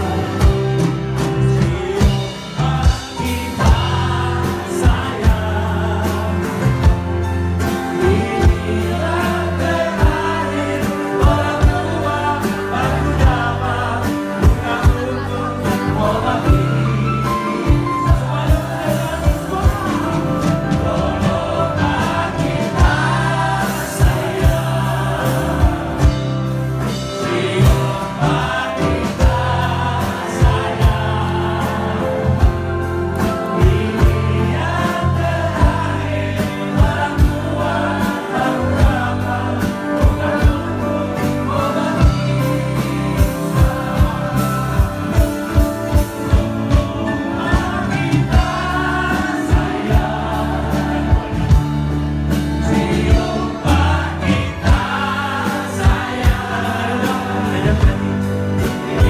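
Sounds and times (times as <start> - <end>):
live band playing: 0.0 - 59.0
voices singing together: 0.0 - 59.0
drum beat: 17.4 - 26.6, 41.9 - 59.0.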